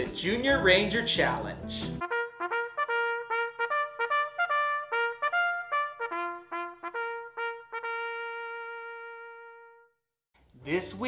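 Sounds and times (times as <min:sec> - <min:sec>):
brass fanfare: 0:02.0 - 0:10.0.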